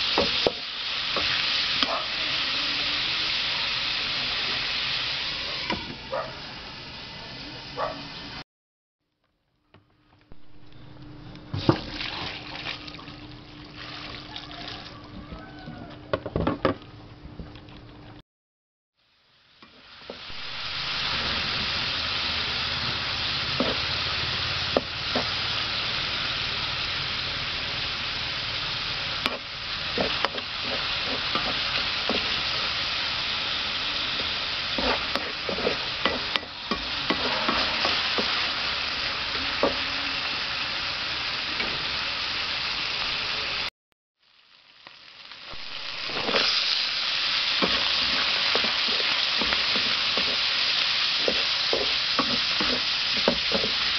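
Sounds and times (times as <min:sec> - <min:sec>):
chicken sizzling in hot oil: 0:00.0 - 0:08.4, 0:19.0 - 0:53.9
spatula scraping metal wok: 0:29.2 - 0:32.8, 0:34.1 - 0:38.8, 0:46.0 - 0:53.9.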